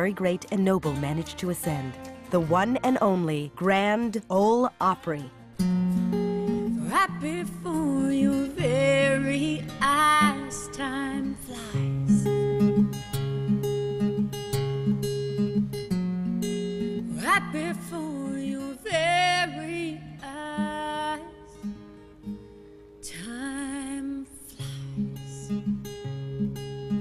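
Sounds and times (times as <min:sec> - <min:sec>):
woman singing: 0:00.0 - 0:05.4, 0:06.5 - 0:12.8, 0:17.0 - 0:22.2, 0:23.0 - 0:25.7
acoustic guitar picking: 0:00.0 - 0:27.0.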